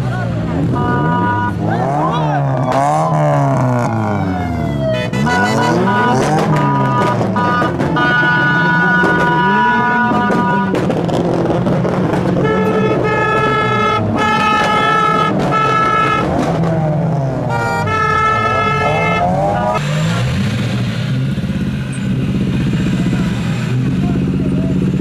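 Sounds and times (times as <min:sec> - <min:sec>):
car engines revving: 0:00.0 - 0:25.0
car horn blasts: 0:00.6 - 0:02.1, 0:04.9 - 0:10.9, 0:12.3 - 0:16.4, 0:17.4 - 0:19.8.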